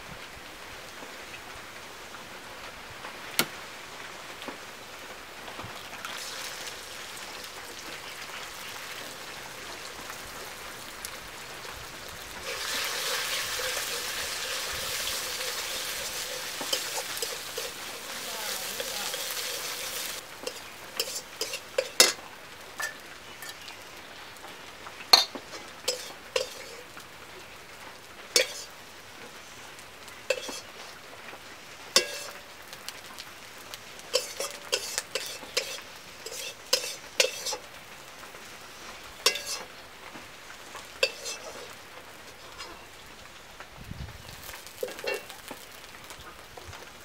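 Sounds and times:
food sizzling in a pan: 5.6 - 47.0
metal spatula scraping a wok: 12.4 - 22.2, 25.5 - 26.9, 28.4 - 28.8, 30.3 - 30.9, 32.0 - 32.4, 34.1 - 37.7, 39.2 - 39.7, 41.0 - 42.8.

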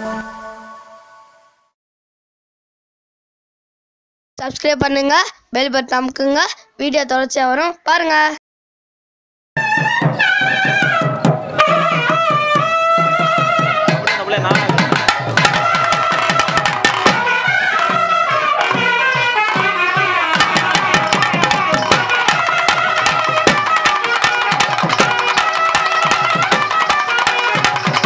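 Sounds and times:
reed pipe melody: 0.0 - 1.6, 9.6 - 28.0
fast drumming: 9.8 - 28.0.

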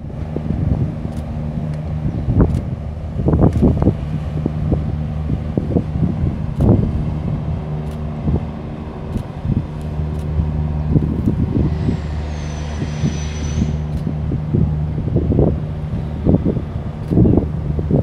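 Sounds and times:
low engine drone: 0.0 - 18.0
wind gusts on microphone: 0.0 - 18.0
thin high tone sliding down: 11.5 - 13.9.

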